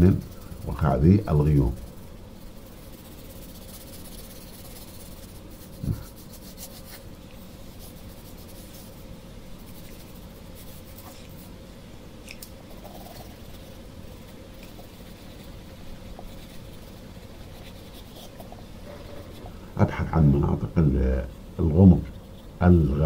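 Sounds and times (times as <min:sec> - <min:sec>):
pencil scratching on paper: 0:00.0 - 0:07.0, 0:12.7 - 0:19.6.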